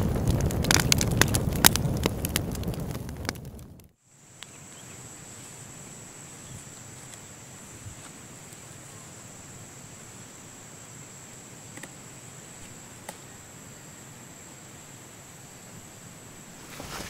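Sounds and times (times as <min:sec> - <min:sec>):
loud crackling with sharp clicks: 0:00.0 - 0:04.5.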